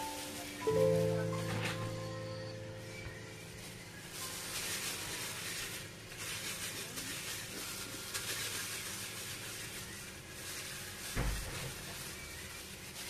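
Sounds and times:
plastic gloves crinkling: 0.0 - 13.0.

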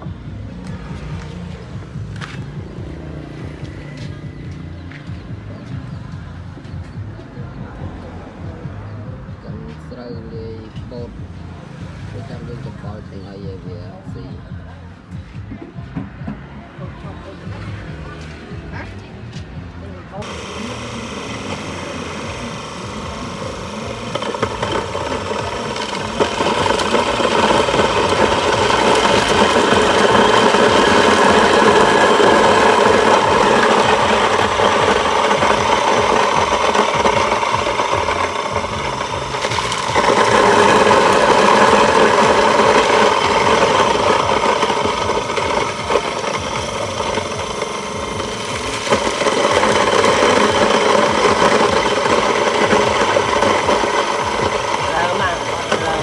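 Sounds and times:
electric grain mill grinding: 0.0 - 6.9, 19.8 - 56.0.

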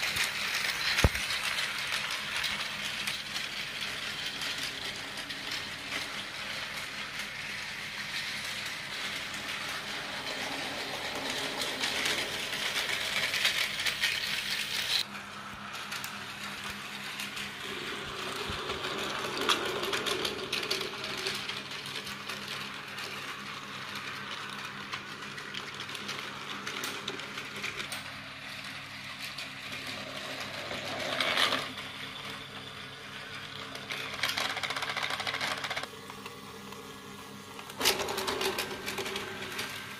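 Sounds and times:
wheels rattling on plastic rails: 0.0 - 15.1, 15.8 - 35.9, 37.7 - 39.9
toy train motors whirring: 0.0 - 35.9, 37.6 - 39.9.

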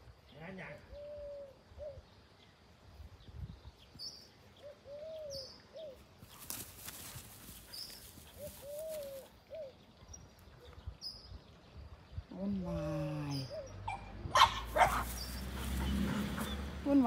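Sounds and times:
dove cooing: 0.9 - 2.0, 4.6 - 6.0, 8.3 - 9.8
rustling noise: 6.2 - 9.3.

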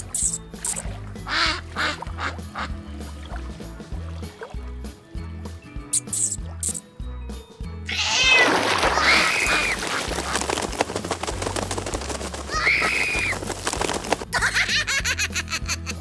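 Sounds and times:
splashing water: 0.0 - 4.8, 7.9 - 14.4
background music: 0.0 - 16.0
cartoon cat yowling: 7.9 - 9.8
duck wings flapping: 8.4 - 14.4.

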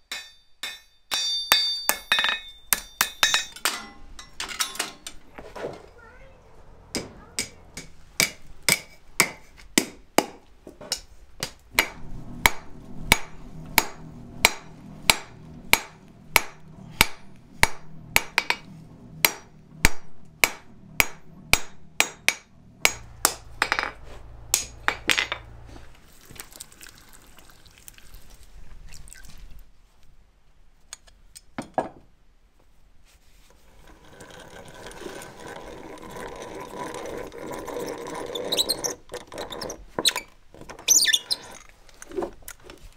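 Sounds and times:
hammer ringing on anvil: 0.1 - 4.9
hand-cranked drill turning: 33.8 - 42.0.

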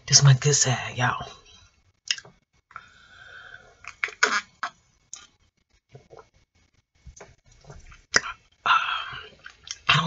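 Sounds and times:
wet mouth clicks: 2.1 - 2.3, 8.1 - 8.4
swallowing gulps: 5.9 - 6.4, 7.0 - 8.4.

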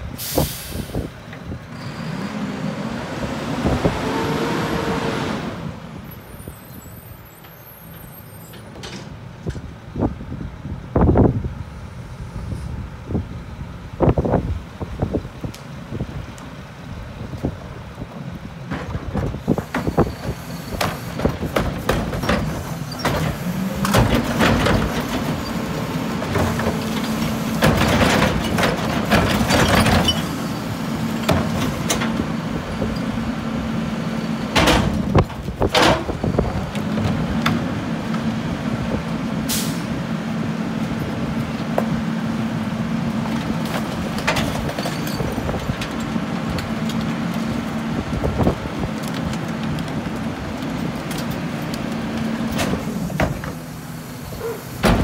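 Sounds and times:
garbage truck engine: 0.0 - 55.0
hydraulic packer humming: 18.8 - 55.0.

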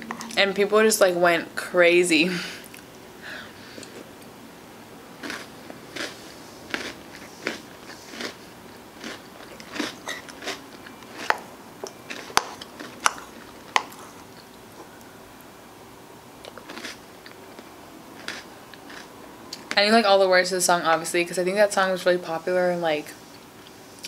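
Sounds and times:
chewing and crunching: 5.2 - 15.0, 16.4 - 19.8.

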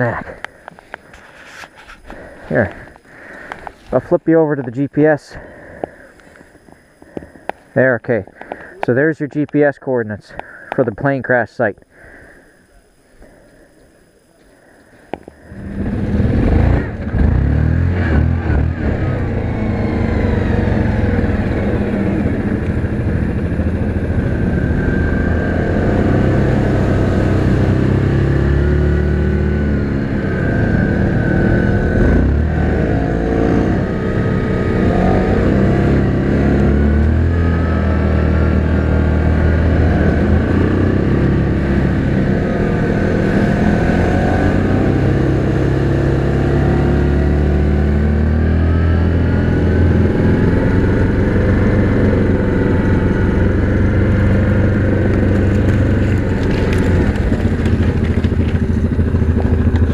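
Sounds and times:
atv engine revving: 15.4 - 59.9.

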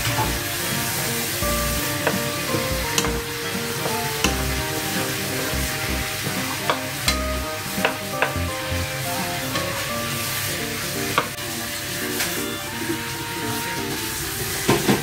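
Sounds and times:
spatula scraping and knocking pan: 0.0 - 8.8
vegetables sizzling in a frying pan: 0.0 - 15.0.

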